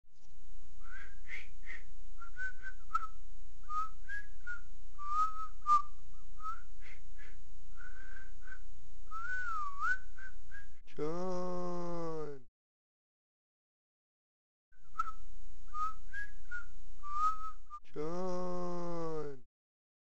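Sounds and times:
person whistling a tune: 0:00.8 - 0:10.8, 0:14.8 - 0:17.8.

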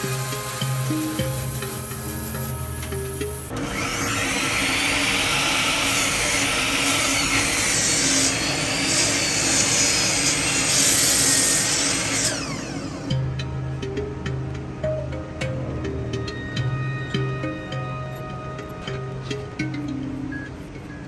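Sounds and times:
miter saw cutting wood: 0:00.0 - 0:13.1
saw motor hum: 0:00.0 - 0:13.2.

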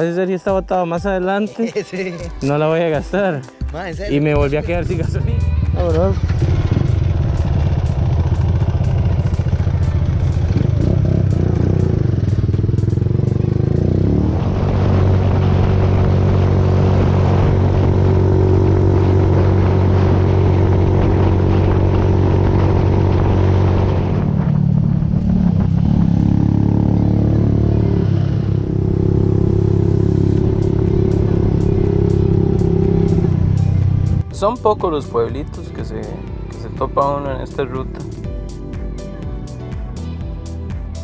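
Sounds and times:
motorcycle engine running: 0:04.3 - 0:41.0
wind rushing over microphone: 0:14.2 - 0:26.9.

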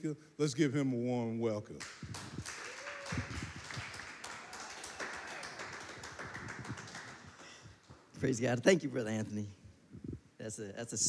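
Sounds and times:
congregation applauding: 0:01.8 - 0:08.1.

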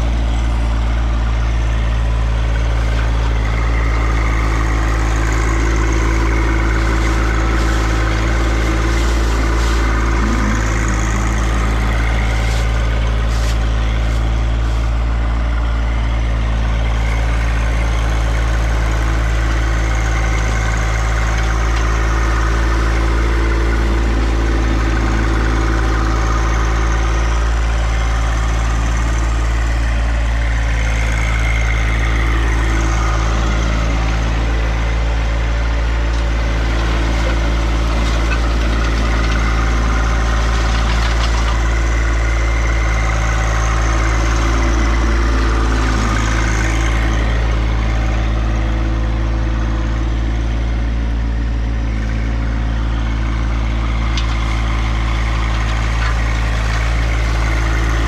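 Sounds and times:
tractor diesel engine running: 0:00.0 - 0:58.0
higher whine: 0:03.0 - 0:15.0, 0:21.2 - 0:29.9, 0:31.0 - 0:50.0
rake pushing leaves: 0:03.9 - 0:15.1, 0:31.2 - 0:47.6.

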